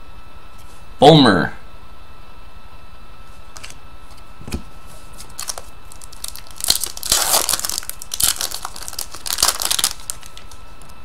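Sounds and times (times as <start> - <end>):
foil wrapper tearing and crinkling: 5.2 - 10.9.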